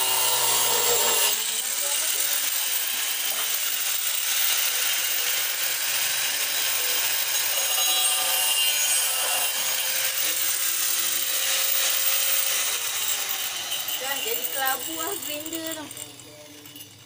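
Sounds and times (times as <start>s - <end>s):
angle grinder cutting metal: 0.0s - 17.0s.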